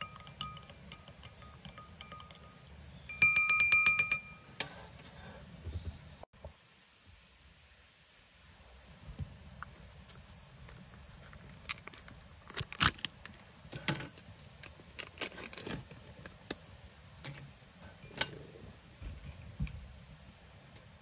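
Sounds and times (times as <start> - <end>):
small objects clicking and tapping: 0.0 - 4.8, 9.6 - 16.6.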